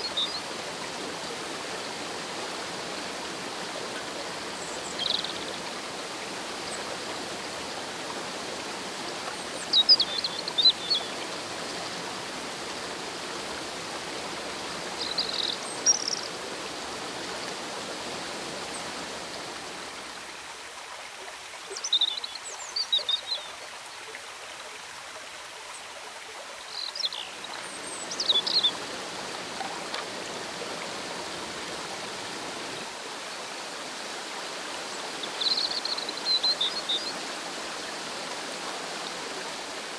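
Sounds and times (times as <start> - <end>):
river water over waterfall: 0.0 - 39.9.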